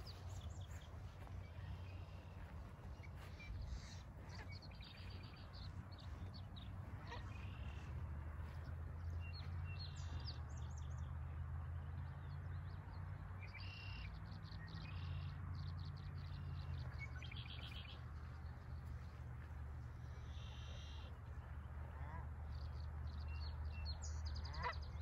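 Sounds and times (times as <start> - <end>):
small birds chirping: 0.0 - 10.9, 15.9 - 21.1
steady low rumble: 0.0 - 11.0.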